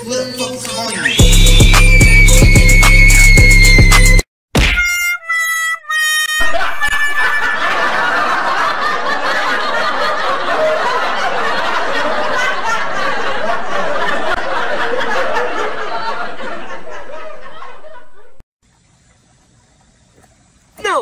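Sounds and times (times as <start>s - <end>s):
musical notes: 4.8s - 6.8s
crowd laughing and shouting: 6.3s - 18.4s.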